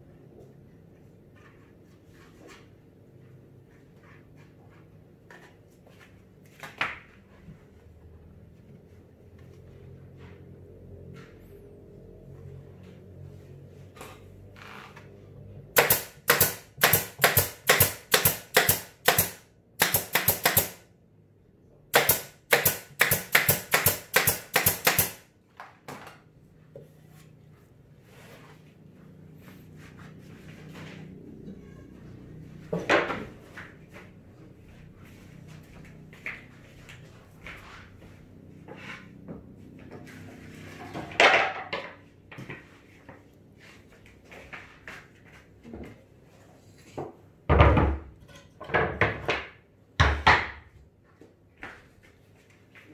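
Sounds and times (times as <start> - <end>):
pneumatic nail gun firing: 15.8 - 20.8, 21.9 - 25.2.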